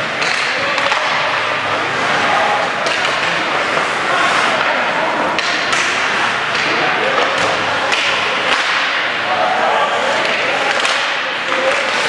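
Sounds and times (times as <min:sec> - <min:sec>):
hockey sticks and puck clacking: 0:00.0 - 0:12.0
indistinct voices: 0:00.0 - 0:12.0
skates scraping on ice: 0:00.1 - 0:08.9.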